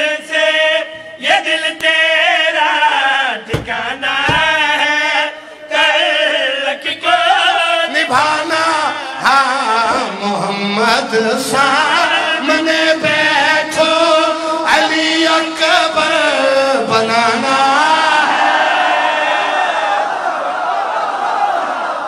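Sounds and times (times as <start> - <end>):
men chanting: 0.0 - 20.0
short dull thumps: 3.5 - 4.9, 13.0 - 13.9.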